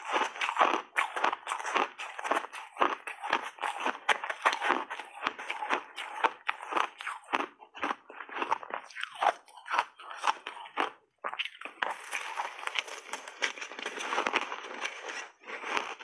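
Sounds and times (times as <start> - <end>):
crunching and chewing shaved ice: 0.0 - 16.0.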